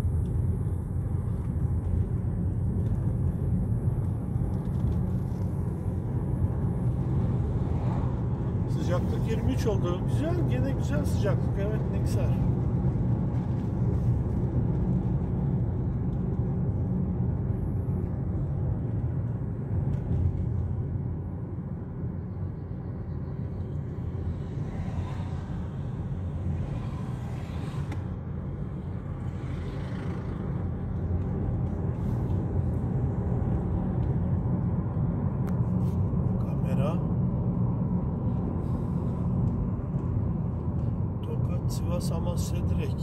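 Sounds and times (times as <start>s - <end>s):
car engine and tyre rumble: 0.0s - 43.0s.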